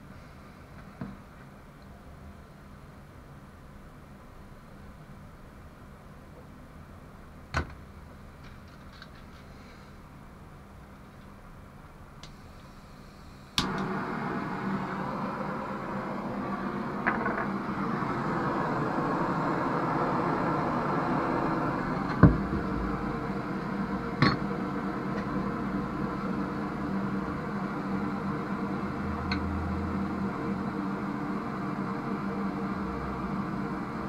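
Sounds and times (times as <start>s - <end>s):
blowtorch hissing: 12.4s - 34.0s.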